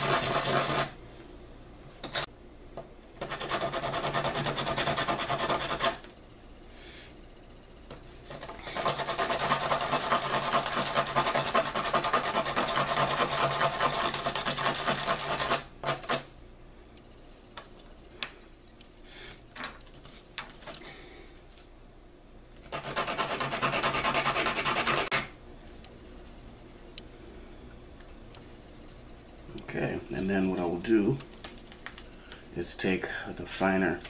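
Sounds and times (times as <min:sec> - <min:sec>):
bone rasping on sandpaper: 0:00.0 - 0:00.9, 0:03.2 - 0:06.0, 0:08.3 - 0:16.2, 0:22.7 - 0:25.2.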